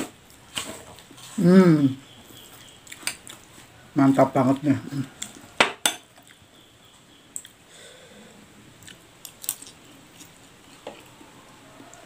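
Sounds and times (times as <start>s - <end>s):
man chewing food: 2.1s - 3.8s, 5.1s - 6.5s, 7.2s - 7.6s, 8.7s - 12.0s.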